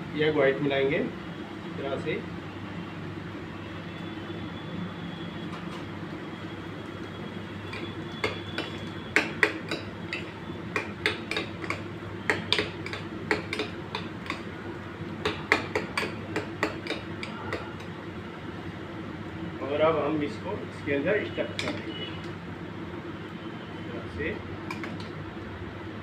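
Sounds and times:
metal spoon clinking in bowl: 0:07.7 - 0:14.5, 0:21.5 - 0:22.0.

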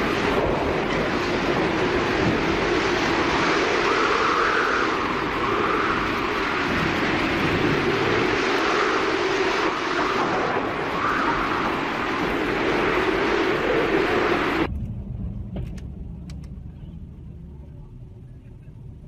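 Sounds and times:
vehicle engine: 0:14.6 - 0:19.0.

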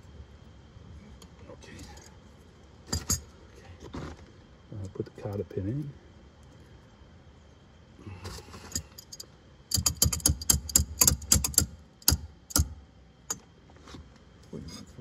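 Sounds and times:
sharp metal clicks: 0:08.7 - 0:13.4.

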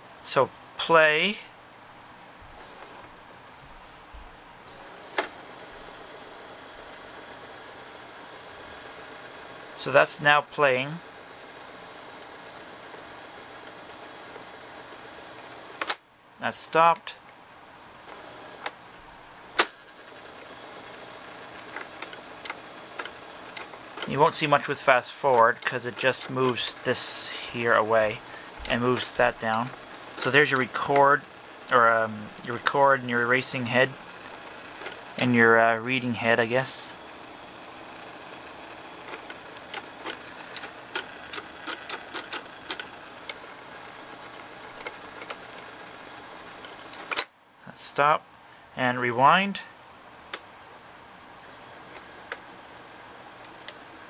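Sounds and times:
tape deck motor running: 0:00.8 - 0:48.6, 0:49.6 - 0:54.0
tape deck control click: 0:04.7 - 0:06.3, 0:11.6 - 0:16.0, 0:18.1 - 0:18.8, 0:19.5 - 0:35.2, 0:37.7 - 0:47.3, 0:51.8 - 0:52.5, 0:53.4 - 0:53.8.

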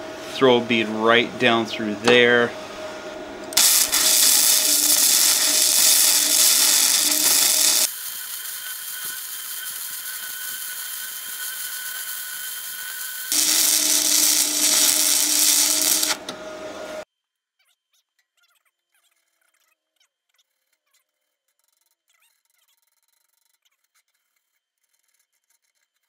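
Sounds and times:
faint steady whine: 0:03.5 - 0:12.0, 0:13.3 - 0:16.3
welding arc crackling and sizzling: 0:03.6 - 0:16.3.

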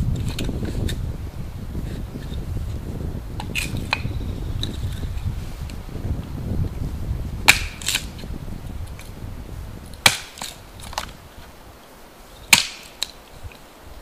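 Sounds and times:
hatchet chopping firewood: 0:03.4 - 0:04.7, 0:07.4 - 0:08.3, 0:09.9 - 0:11.2, 0:12.5 - 0:13.2.

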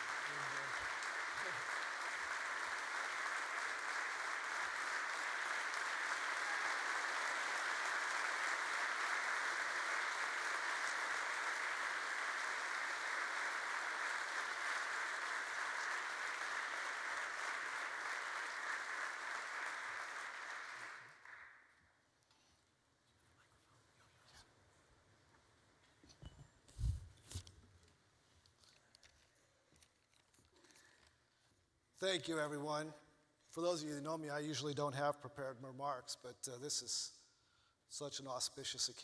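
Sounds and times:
audience applauding: 0:00.0 - 0:21.6.

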